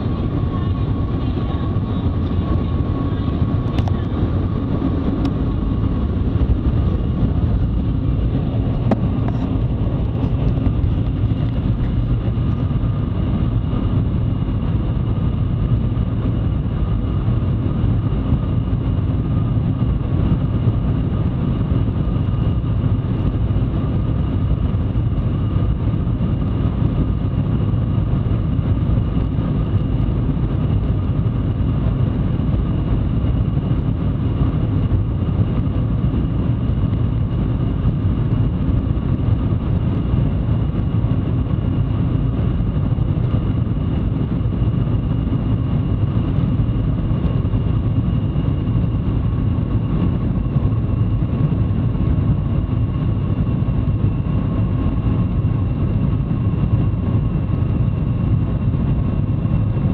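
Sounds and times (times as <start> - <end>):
train cabin rumble: 0.0 - 12.8
faint steady whine: 0.0 - 59.9.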